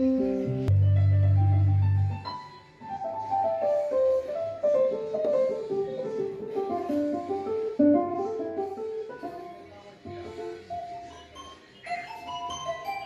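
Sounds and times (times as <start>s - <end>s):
synthesizer bass note: 0.7s - 2.2s.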